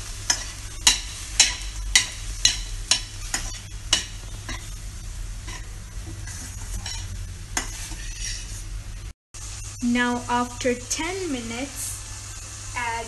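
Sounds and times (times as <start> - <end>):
vegetables sizzling: 0.0 - 13.0
spatula scraping metal pan: 0.3 - 4.7, 5.5 - 8.7.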